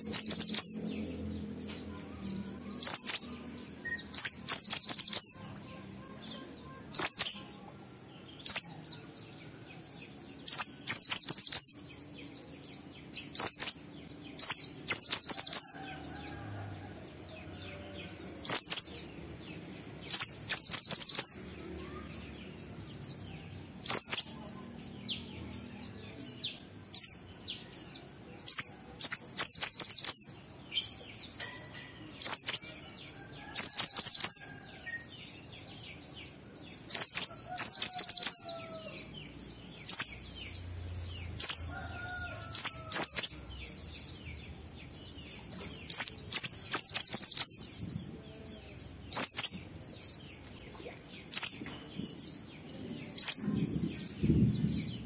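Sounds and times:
bird twittering: 0:00.0 - 0:00.8, 0:02.8 - 0:05.4, 0:06.9 - 0:07.4, 0:14.4 - 0:15.7, 0:18.5 - 0:18.9, 0:23.8 - 0:24.3, 0:45.9 - 0:47.6, 0:49.1 - 0:49.6.

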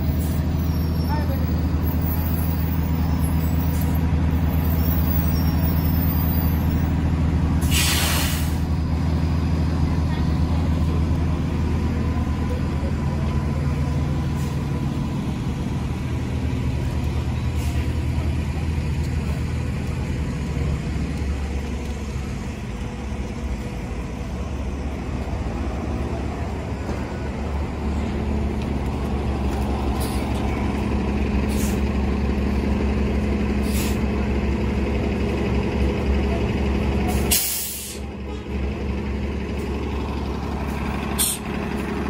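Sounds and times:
bus engines idling: 0:00.0 - 0:42.0
air brake hisses: 0:07.6 - 0:08.7, 0:31.5 - 0:31.9, 0:33.6 - 0:34.1, 0:37.1 - 0:38.1, 0:41.2 - 0:41.5.

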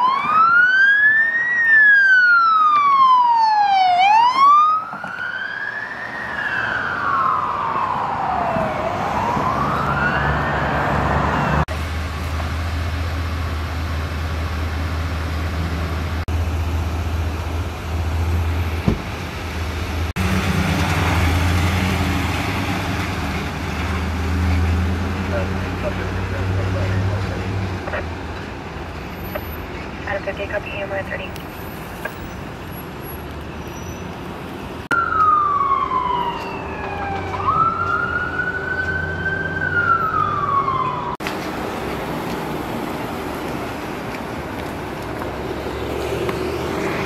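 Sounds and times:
police siren wailing: 0:00.0 - 0:11.7, 0:34.9 - 0:41.2.

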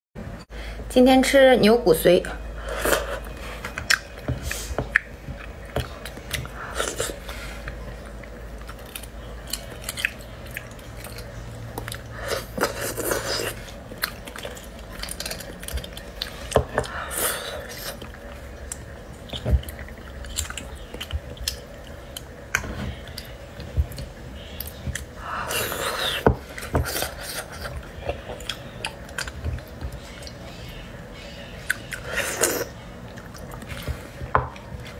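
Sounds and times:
close chewing and mouth sounds: 0:02.6 - 0:34.9.

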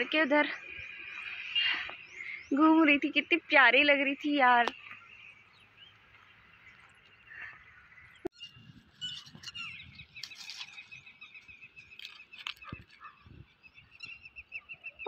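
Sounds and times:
high chirping calls: 0:04.6 - 0:15.0
dry palm fronds rustling: 0:08.7 - 0:13.1.

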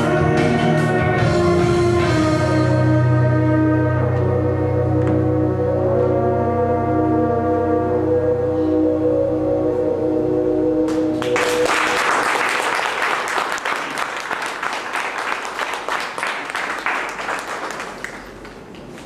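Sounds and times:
sustained musical chord: 0:00.0 - 0:12.9
audience applause: 0:11.2 - 0:18.7.

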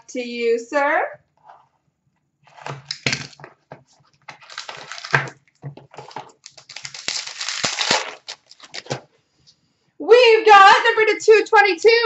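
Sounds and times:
cardboard and wrapper crinkling: 0:02.4 - 0:09.1.

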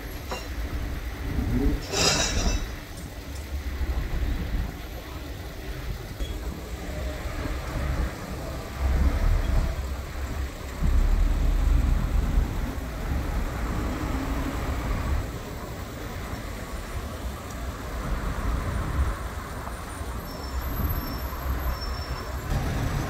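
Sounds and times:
vehicles passing: 0:00.0 - 0:23.0
steady low rumble: 0:00.6 - 0:13.9.

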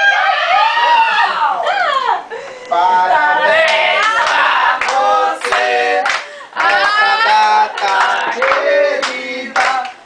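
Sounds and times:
group singing in unison: 0:02.7 - 0:10.0
hand clapping: 0:03.7 - 0:10.0.

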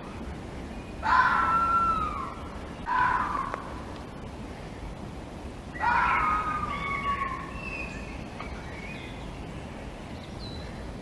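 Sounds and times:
steady hiss: 0:00.0 - 0:11.0
fox calling: 0:01.0 - 0:03.8, 0:05.7 - 0:08.0.

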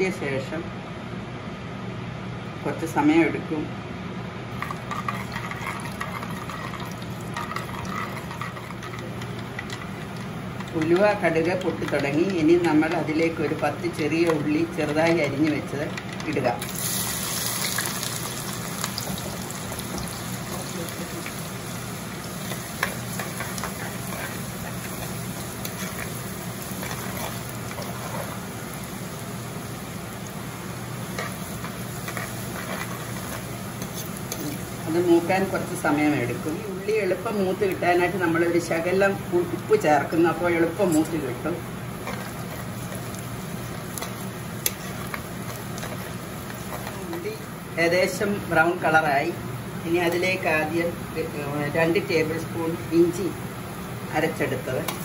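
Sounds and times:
seeds sizzling in hot oil: 0:04.5 - 0:55.0
steel spoon stirring: 0:04.6 - 0:17.0, 0:21.2 - 0:29.1, 0:30.9 - 0:36.3, 0:39.8 - 0:47.4.

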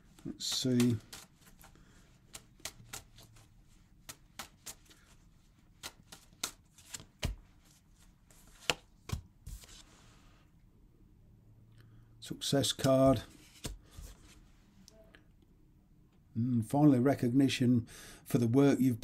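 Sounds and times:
cards being shuffled: 0:00.0 - 0:10.0, 0:12.6 - 0:14.4.

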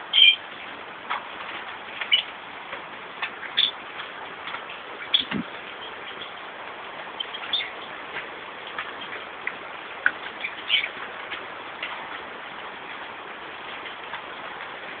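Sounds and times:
birds chirping: 0:00.0 - 0:00.7, 0:02.0 - 0:02.4, 0:03.2 - 0:03.8, 0:04.9 - 0:08.1, 0:10.0 - 0:11.2.

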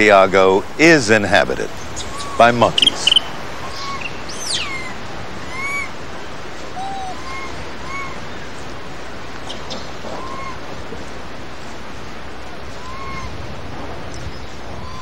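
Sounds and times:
steady outdoor hiss: 0:00.0 - 0:15.0
whistle-like animal calls: 0:02.0 - 0:05.9, 0:06.7 - 0:08.2, 0:09.6 - 0:10.6, 0:12.8 - 0:13.3, 0:14.8 - 0:15.0.

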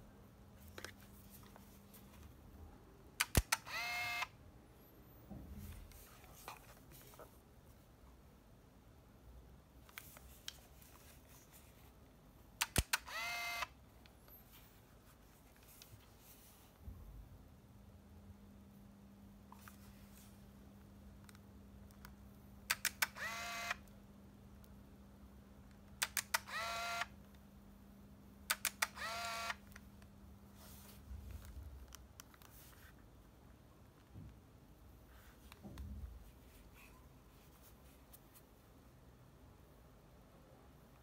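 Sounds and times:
camera shutter clicks: 0:03.2 - 0:04.3, 0:12.6 - 0:13.7, 0:22.7 - 0:23.8, 0:28.5 - 0:29.6.

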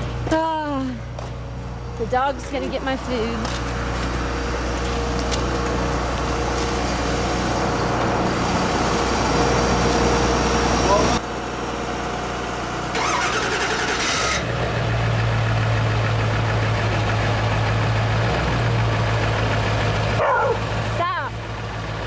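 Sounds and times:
truck engine idling: 0:00.0 - 0:22.0
engine clattering burst: 0:12.8 - 0:22.0.

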